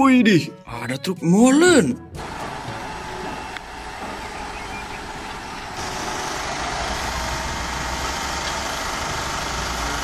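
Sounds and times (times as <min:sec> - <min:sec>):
diesel engine running: 0:02.2 - 0:10.0
engine hiss: 0:02.2 - 0:10.0.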